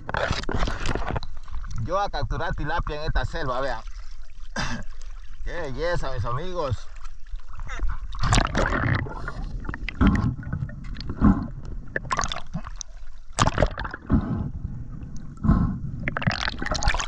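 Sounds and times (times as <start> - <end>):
water splashing and gurgling: 0.0 - 17.0
knocks underwater: 8.1 - 17.0.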